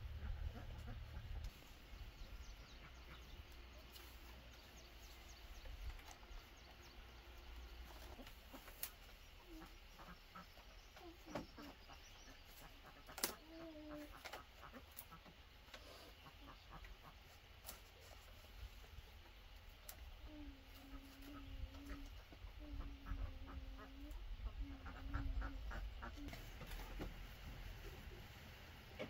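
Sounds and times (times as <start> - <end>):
poultry clucking: 0.0 - 29.0
bamboo strips ticking and rustling: 3.0 - 22.5.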